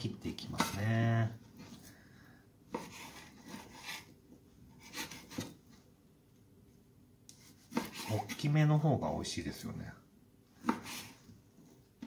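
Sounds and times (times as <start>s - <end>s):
knife slicing raw chicken: 2.7s - 4.1s, 7.3s - 8.5s, 10.6s - 11.2s.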